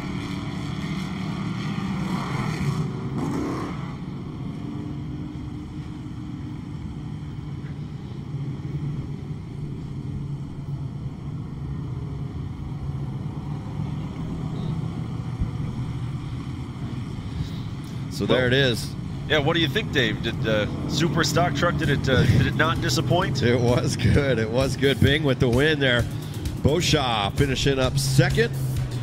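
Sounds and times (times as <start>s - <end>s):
truck engine running: 0.0s - 29.0s.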